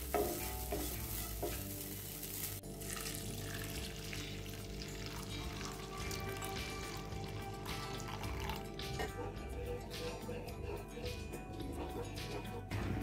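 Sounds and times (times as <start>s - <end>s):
spatula stirring flakes: 0.0s - 5.9s
milk pouring into a pan: 2.8s - 8.8s.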